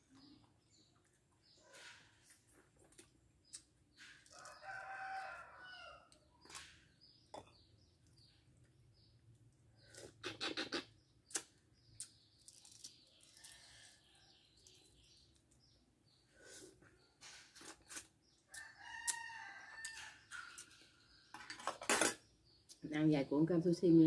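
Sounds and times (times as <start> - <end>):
small birds chirping: 0.0 - 24.0
rooster crowing: 4.4 - 6.1, 18.5 - 20.2.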